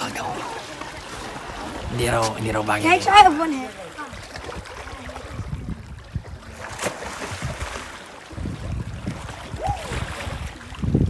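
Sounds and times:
seawater lapping and sloshing: 0.0 - 11.0
small water splashes: 0.0 - 11.0
wind buffeting microphone: 4.1 - 11.0.

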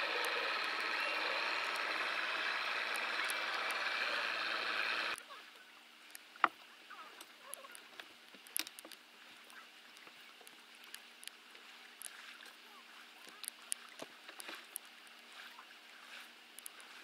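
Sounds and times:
outboard motor idling: 0.0 - 5.2
light ticks: 6.0 - 6.6, 7.2 - 12.6, 13.2 - 15.3, 16.5 - 17.0.

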